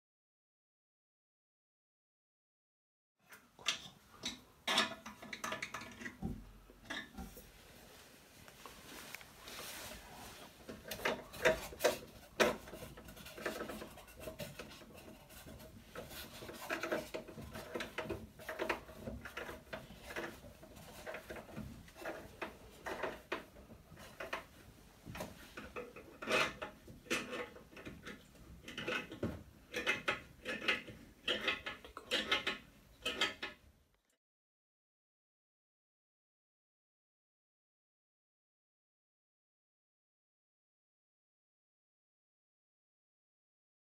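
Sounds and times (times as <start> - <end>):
tools clinking and knocking: 3.6 - 7.4.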